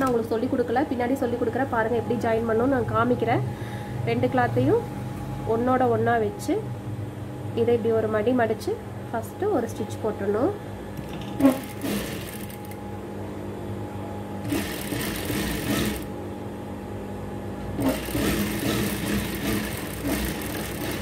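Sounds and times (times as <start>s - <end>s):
steady motor hum: 0.0s - 21.0s
sewing machine stitching: 11.4s - 12.8s, 14.4s - 16.1s, 17.8s - 21.0s.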